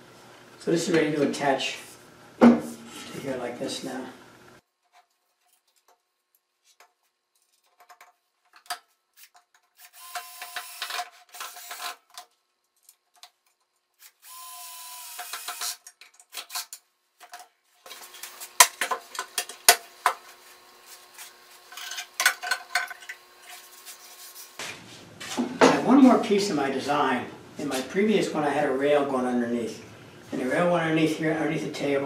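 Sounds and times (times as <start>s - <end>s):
parts knocking and clattering: 6.8s - 12.4s, 15.2s - 20.3s, 21.6s - 23.3s
cordless drill running: 9.8s - 12.0s, 14.2s - 15.8s.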